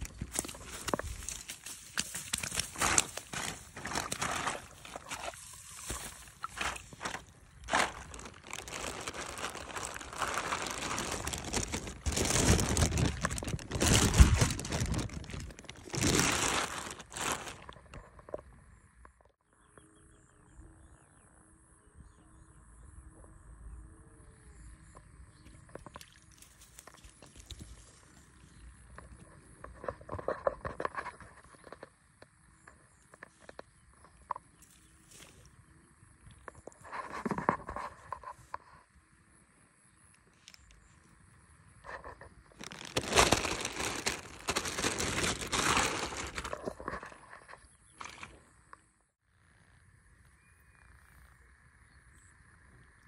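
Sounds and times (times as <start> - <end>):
grass rustling: 0.0 - 18.0, 41.9 - 48.5
plastic bag crinkling: 0.0 - 18.0, 42.5 - 47.2, 48.0 - 48.4.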